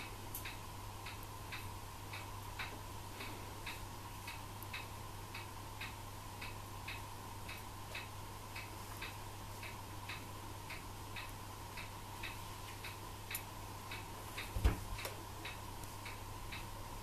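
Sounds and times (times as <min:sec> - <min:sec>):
clock ticking: 0:00.0 - 0:17.0
low steady hum: 0:00.0 - 0:17.0
dull thump: 0:14.6 - 0:14.9.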